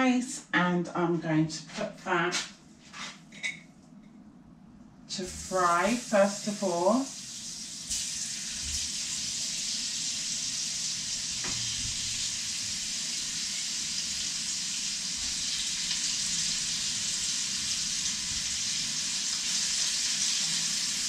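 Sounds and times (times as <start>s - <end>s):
meat sizzling in hot oil: 5.2s - 21.0s.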